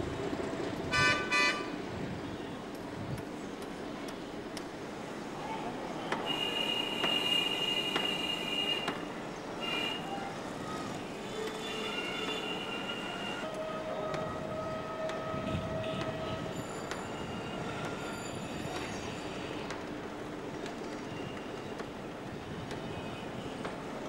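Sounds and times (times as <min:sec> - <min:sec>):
train rumble: 0:00.0 - 0:24.0
train wheels squealing: 0:16.0 - 0:19.6.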